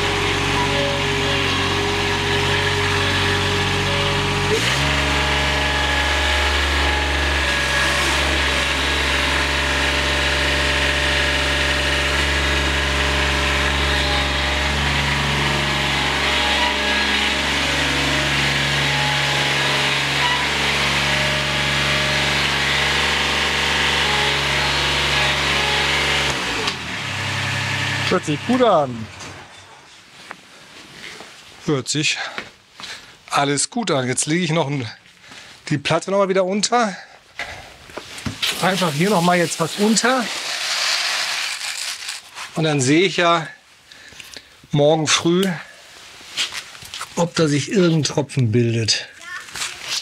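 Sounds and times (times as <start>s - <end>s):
mower diesel engine running: 0.0s - 29.6s, 38.6s - 42.4s.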